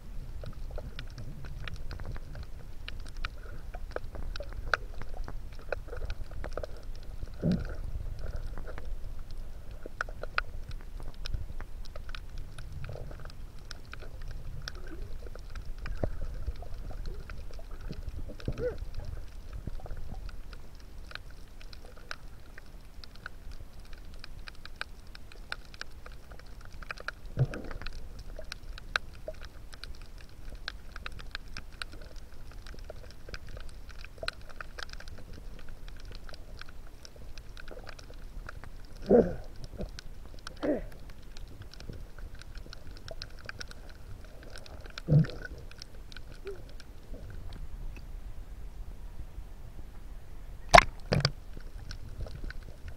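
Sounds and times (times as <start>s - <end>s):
low underwater rumble: 0.0s - 24.1s
crackle of sharp underwater clicks: 0.1s - 48.2s, 50.6s - 52.9s.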